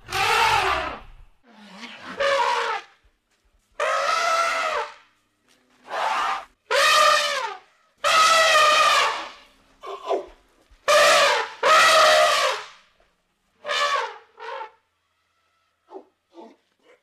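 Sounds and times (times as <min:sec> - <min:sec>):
elephant trumpeting: 0:00.0 - 0:02.9, 0:03.8 - 0:05.0, 0:05.8 - 0:10.2, 0:10.9 - 0:12.7, 0:13.6 - 0:14.8.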